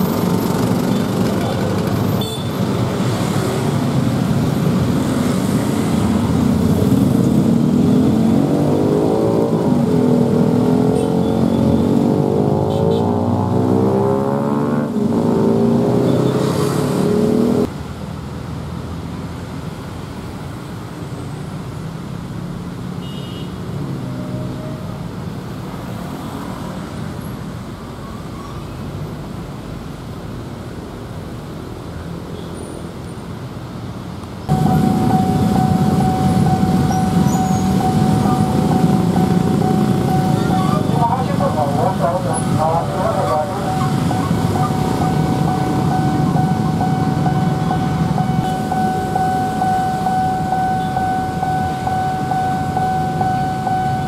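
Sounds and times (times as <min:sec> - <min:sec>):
motorbikes running: 0:00.0 - 0:17.7, 0:34.5 - 0:54.0
cars crossing railway tracks: 0:00.0 - 0:54.0
truck diesel engine: 0:34.5 - 0:54.0.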